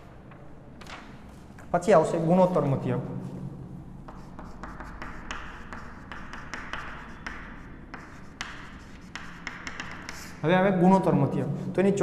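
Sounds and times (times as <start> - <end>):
chalk scratching on chalkboard: 4.0 - 10.4.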